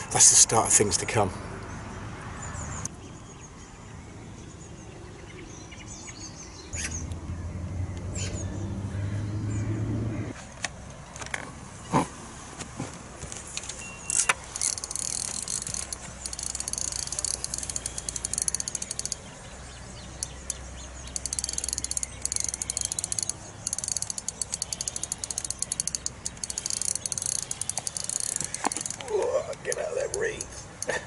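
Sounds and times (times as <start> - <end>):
fishing reel ticking: 14.1 - 19.3, 20.1 - 31.0.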